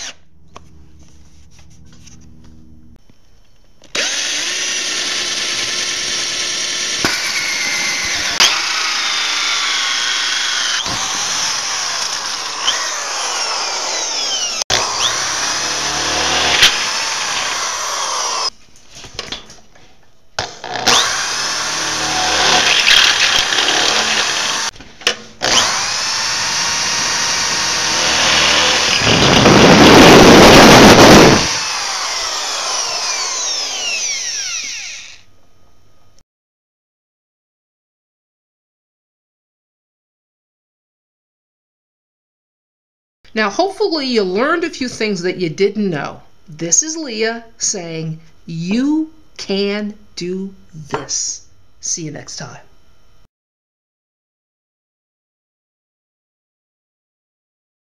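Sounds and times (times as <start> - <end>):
drill cutting through sheet metal: 0.0 - 0.2, 3.9 - 18.5, 20.4 - 24.8, 25.4 - 35.3
power drill motor whine: 0.0 - 0.2, 3.8 - 18.5, 20.4 - 24.7, 25.4 - 35.3.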